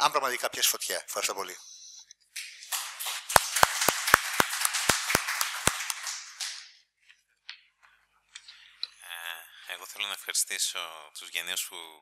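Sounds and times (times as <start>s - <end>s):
small audience applause: 2.4s - 6.7s.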